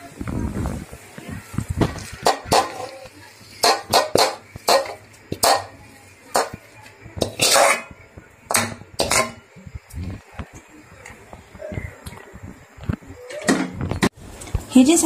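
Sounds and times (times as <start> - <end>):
metal spoon scraping a pan: 2.0 - 6.6, 7.2 - 9.4.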